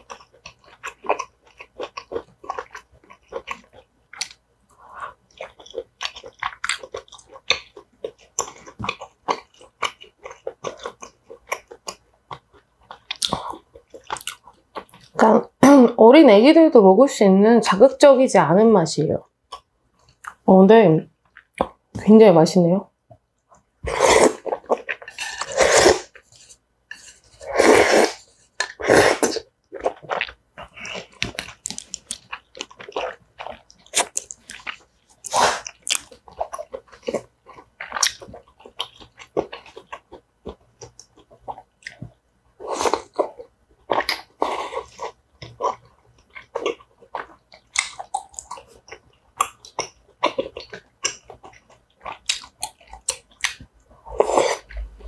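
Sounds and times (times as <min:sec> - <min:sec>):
chewing with wet mouth clicks: 0:00.0 - 0:15.2, 0:19.5 - 0:20.4, 0:21.2 - 0:21.8, 0:29.6 - 0:42.2, 0:42.9 - 0:53.8
noodle slurping: 0:23.8 - 0:30.0.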